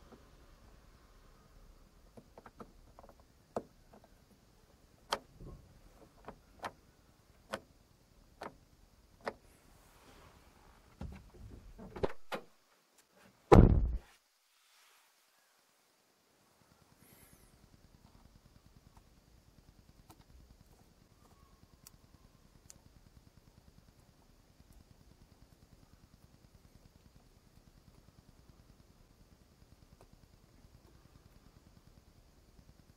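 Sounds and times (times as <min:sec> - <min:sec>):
small plastic clicks and taps: 0:02.0 - 0:04.4, 0:05.0 - 0:05.3
low thud: 0:13.5 - 0:14.1.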